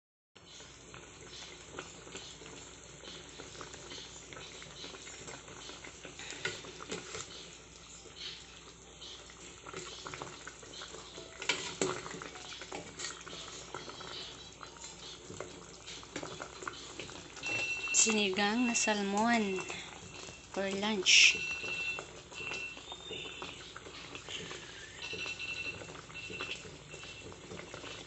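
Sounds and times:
broth bubbling in pot: 0.4s - 28.0s.

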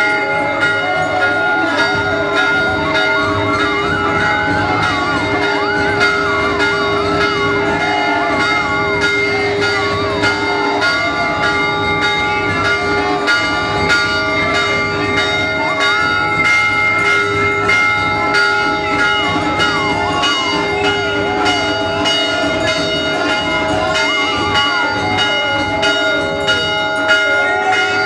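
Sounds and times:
temple bells ringing: 0.0s - 28.0s
wavering melody: 0.0s - 28.0s.

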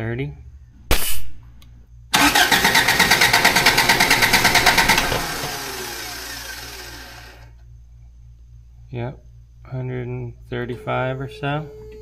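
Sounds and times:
engine cranking on starter: 2.2s - 7.5s.

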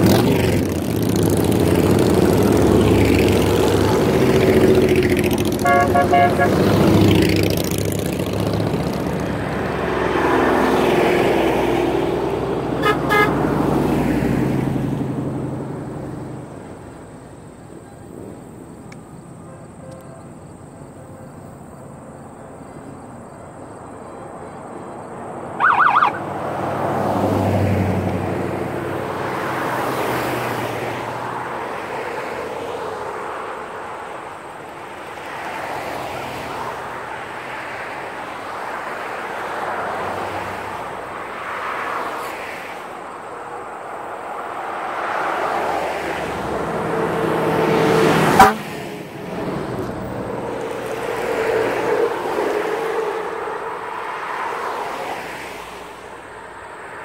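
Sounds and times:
vehicles driving past: 0.0s - 57.0s
horn honk: 5.3s - 7.2s, 12.7s - 13.6s, 48.0s - 48.8s.

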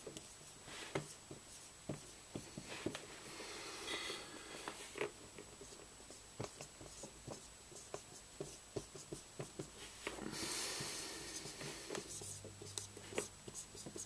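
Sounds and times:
marker writing on whiteboard: 0.0s - 2.6s, 5.4s - 10.0s, 10.8s - 14.0s.

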